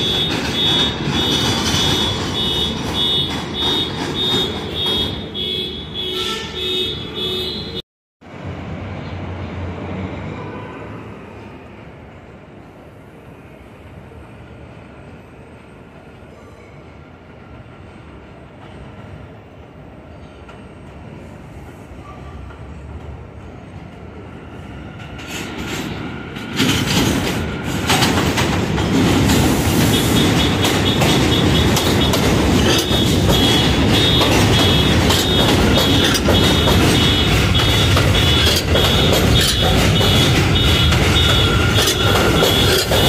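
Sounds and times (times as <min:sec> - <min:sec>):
wheels clacking over rail joints: 0:00.0 - 0:05.5, 0:25.0 - 0:43.0
subway train rumbling: 0:00.0 - 0:43.0.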